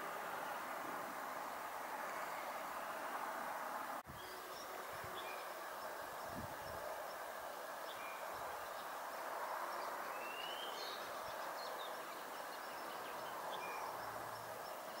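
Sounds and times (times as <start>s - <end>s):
outdoor background noise: 0.0s - 15.0s
faint bird chirps: 9.8s - 15.0s.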